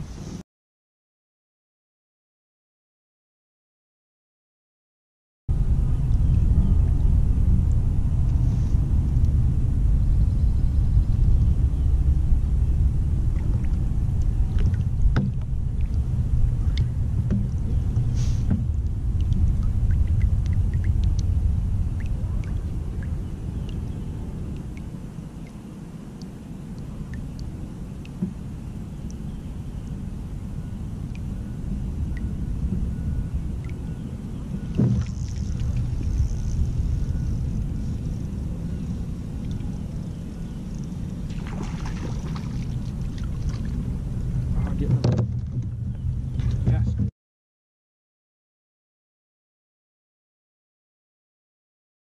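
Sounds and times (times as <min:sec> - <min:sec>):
wind rumble on microphone: 0:00.0 - 0:00.4, 0:05.5 - 0:47.1
water dripping into water: 0:13.3 - 0:30.0, 0:31.0 - 0:31.3, 0:32.0 - 0:32.9, 0:33.5 - 0:33.8, 0:39.3 - 0:39.7.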